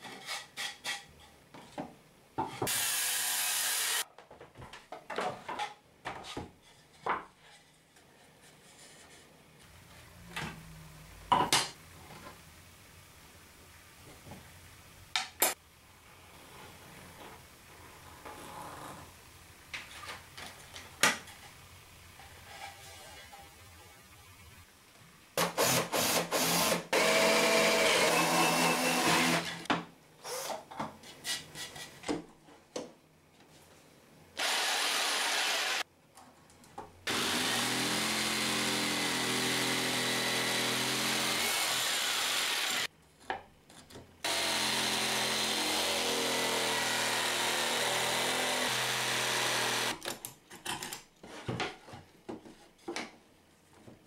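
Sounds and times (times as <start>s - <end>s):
jigsaw cutting plywood: 2.7s - 4.0s, 25.4s - 29.6s, 34.4s - 35.8s, 37.1s - 42.9s, 44.2s - 50.0s.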